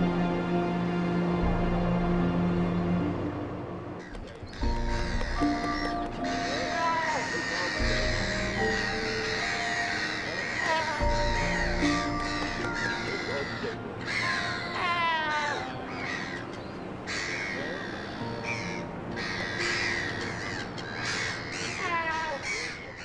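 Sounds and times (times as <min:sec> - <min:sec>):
seal rasping cries: 0:04.0 - 0:16.5, 0:17.1 - 0:23.0.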